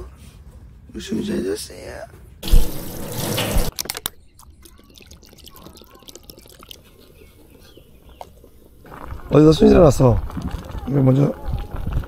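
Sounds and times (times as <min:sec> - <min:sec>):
water dripping: 0:02.4 - 0:12.0
water splashing: 0:02.4 - 0:12.0.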